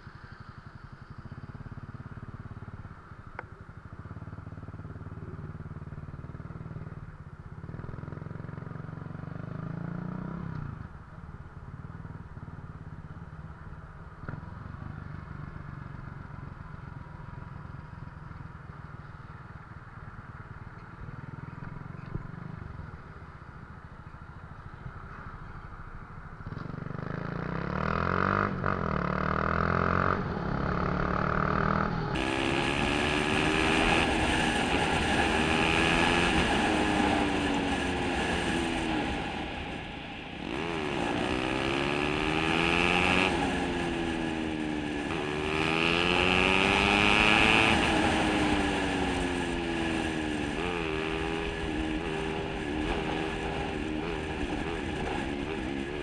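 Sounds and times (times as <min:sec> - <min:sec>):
rushing wind noise: 0:31.5 - 0:56.0.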